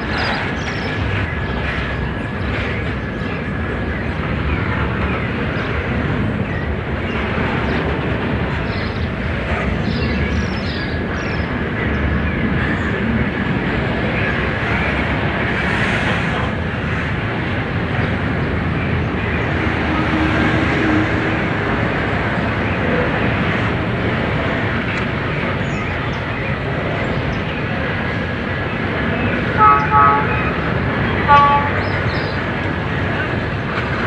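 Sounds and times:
train wheels rumbling on rail: 0:00.0 - 0:34.0.

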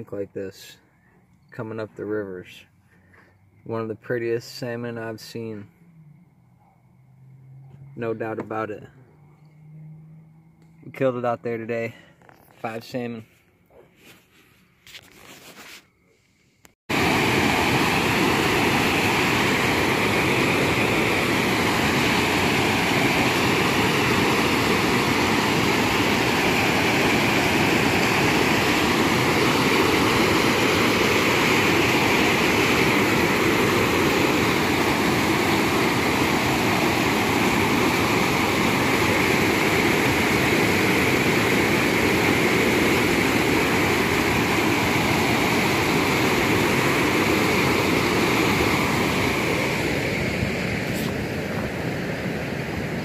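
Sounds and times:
water rushing over a dam: 0:16.9 - 0:53.0.

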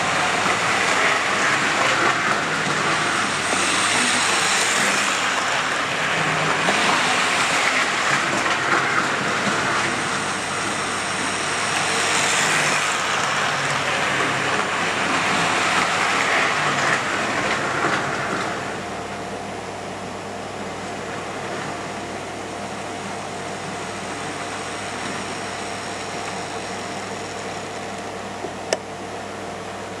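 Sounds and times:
model train motor whirring: 0:00.0 - 0:17.2, 0:24.0 - 0:27.8.

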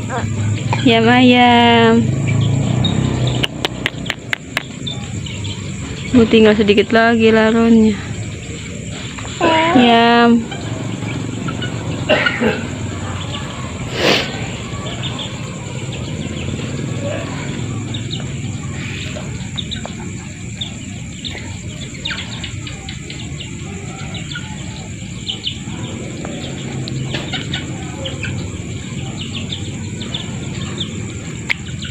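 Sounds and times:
chickens calling: 0:00.0 - 0:31.9
night insects droning: 0:00.0 - 0:31.9.

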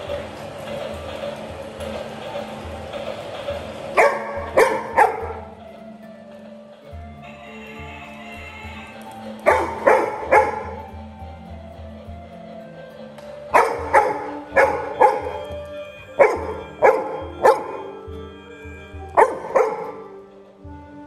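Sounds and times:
background music with low beat: 0:00.0 - 0:21.0
puppy barking: 0:04.0 - 0:05.5, 0:09.4 - 0:11.0, 0:13.5 - 0:18.0, 0:19.1 - 0:20.2.

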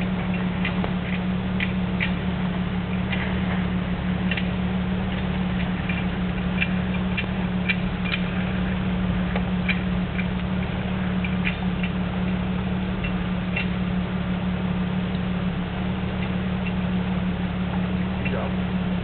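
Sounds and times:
stones clicking under tyres: 0:00.0 - 0:14.0
low engine drone: 0:00.0 - 0:19.0.

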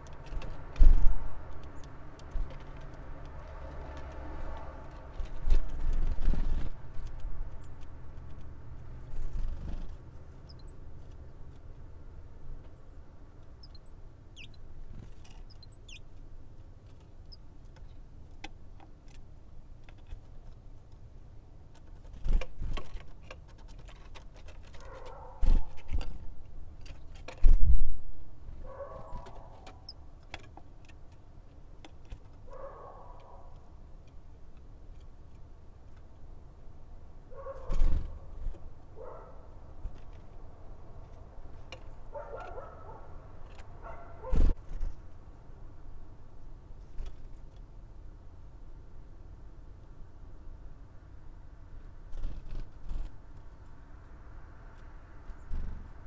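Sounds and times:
thin high bird calls: 0:13.6 - 0:14.6.

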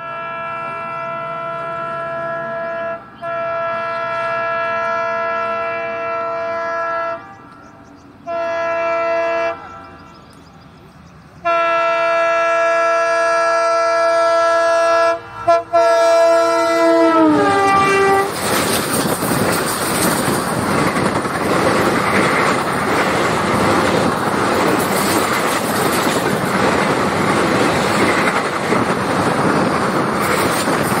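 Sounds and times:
diesel locomotive horn: 0:00.0 - 0:10.3, 0:11.4 - 0:18.6
wheel and rail noise: 0:15.1 - 0:31.0.

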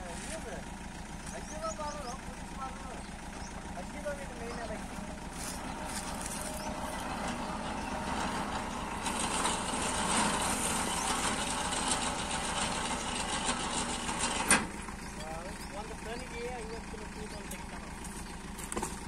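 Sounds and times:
hoist running with rapid clatter: 0:08.0 - 0:14.7.

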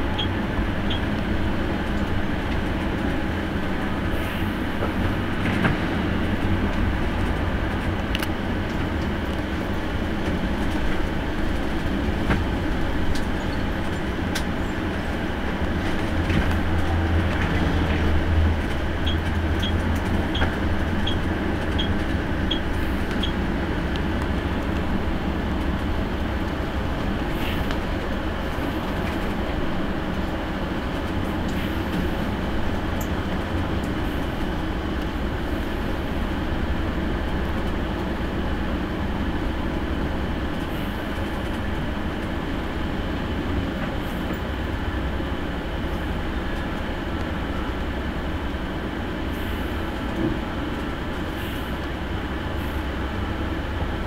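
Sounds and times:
bus engine rumble: 0:00.0 - 0:54.0
road noise: 0:00.0 - 0:54.0
light ticks: 0:08.1 - 0:09.4.

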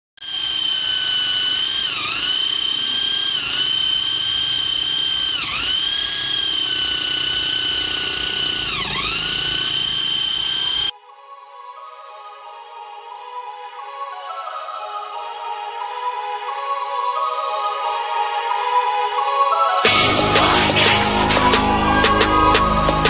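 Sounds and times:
electric drill whining: 0:00.2 - 0:10.9, 0:19.8 - 0:21.6.

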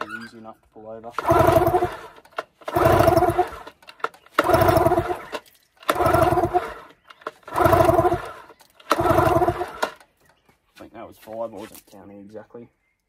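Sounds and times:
engine turning over whir: 0:01.2 - 0:10.2.

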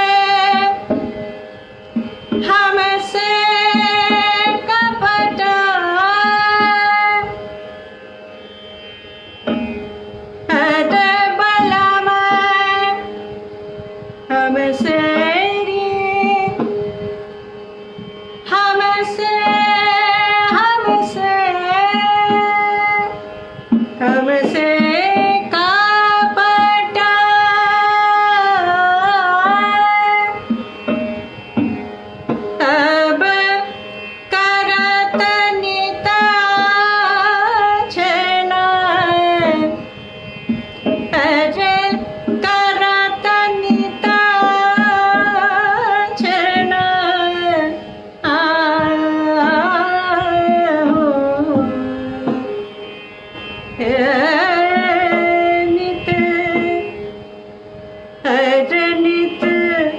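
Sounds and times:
woman singing: 0:00.0 - 0:00.9, 0:02.4 - 0:07.4, 0:10.5 - 0:13.1, 0:14.3 - 0:16.7, 0:18.4 - 0:23.2, 0:24.0 - 0:30.4, 0:32.6 - 0:39.9, 0:41.1 - 0:52.8, 0:53.8 - 0:57.1, 0:58.2 - 0:59.9
steady drone: 0:00.0 - 0:59.9.

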